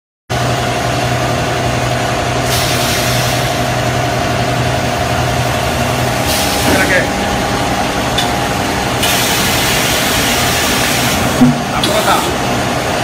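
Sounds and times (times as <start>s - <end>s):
machine humming: 3.3s - 13.0s.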